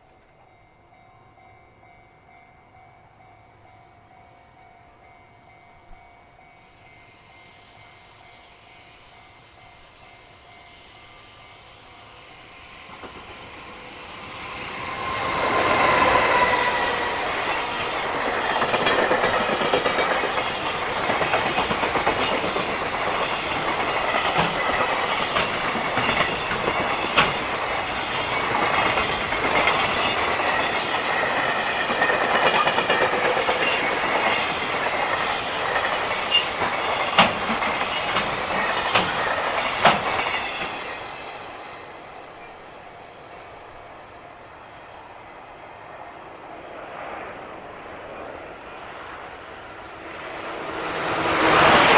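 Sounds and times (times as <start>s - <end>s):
train wagons clickety-clack: 0.0s - 1.5s, 12.8s - 42.6s, 50.8s - 51.9s
locomotive passing: 0.0s - 51.9s.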